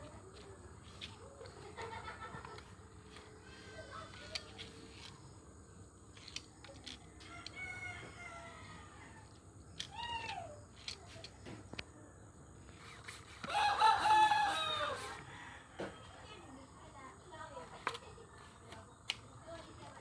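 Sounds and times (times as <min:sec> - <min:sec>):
rooster crowing: 0:07.2 - 0:09.4, 0:13.4 - 0:16.3
chickens calling: 0:13.4 - 0:15.4.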